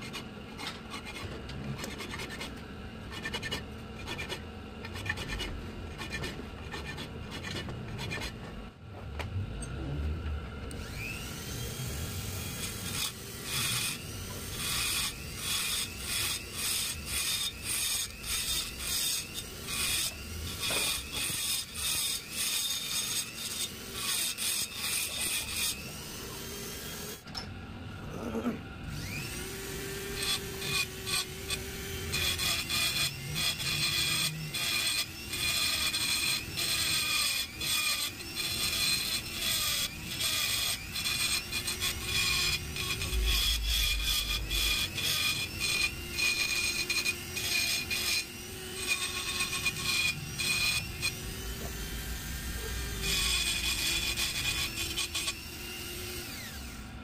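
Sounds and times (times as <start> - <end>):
hand tool rasping on metal: 0.0 - 8.4, 12.4 - 26.3, 30.2 - 55.4.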